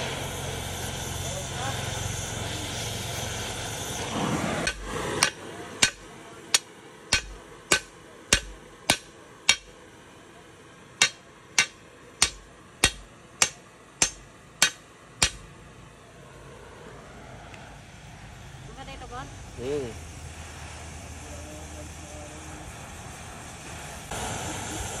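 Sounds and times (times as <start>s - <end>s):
torch hissing: 0.0s - 9.7s, 18.9s - 25.0s
hammer ringing on anvil: 4.7s - 9.7s, 11.0s - 15.4s.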